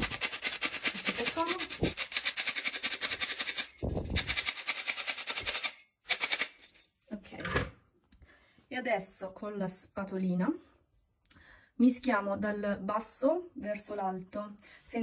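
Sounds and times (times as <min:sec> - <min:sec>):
flour sifter rattling clicks: 0:00.0 - 0:06.8.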